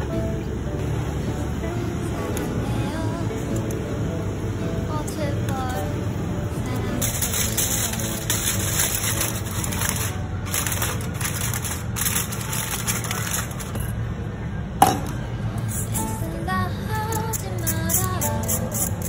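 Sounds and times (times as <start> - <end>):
background music: 0.0 - 13.9, 14.8 - 19.0
aluminium foil crinkling: 6.9 - 14.0.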